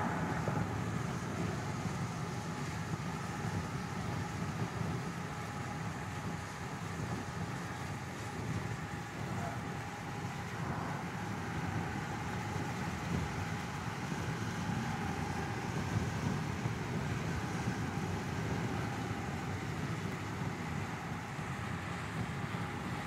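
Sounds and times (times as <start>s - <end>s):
car driving rumble: 0.0s - 4.4s.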